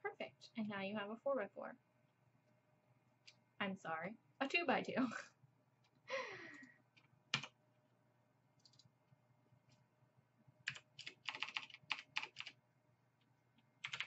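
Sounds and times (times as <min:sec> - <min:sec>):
keyboard keys clicking: 0:08.6 - 0:08.9, 0:10.7 - 0:12.6.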